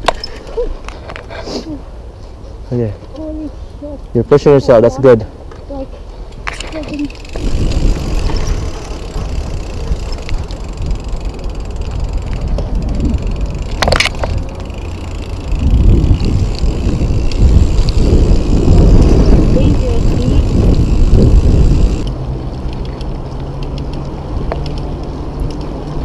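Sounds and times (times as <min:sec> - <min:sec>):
bike tyre and drivetrain rumble: 0:05.4 - 0:26.0
wind buffeting microphone: 0:06.8 - 0:23.4.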